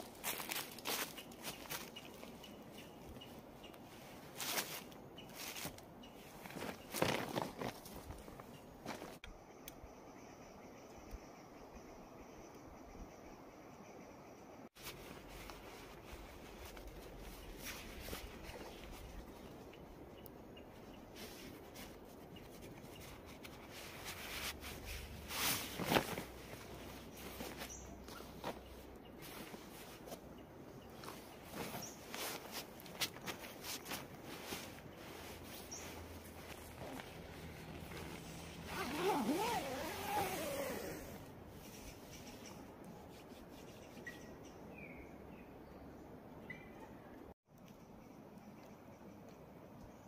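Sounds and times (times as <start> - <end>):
sleeping bag rustling: 3.8 - 9.2, 14.8 - 19.3, 23.0 - 41.3
zipper being pulled: 36.6 - 41.2.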